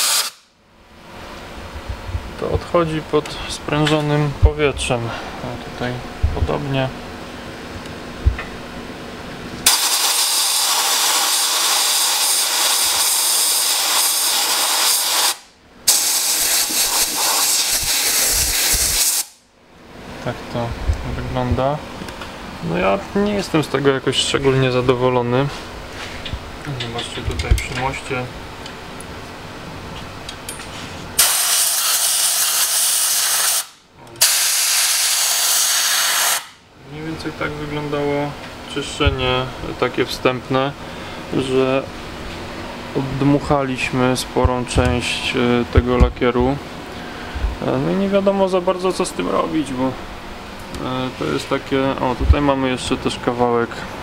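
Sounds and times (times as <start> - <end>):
compressed-air blow gun hissing: 0.0 - 0.4, 9.6 - 19.4, 31.2 - 36.6.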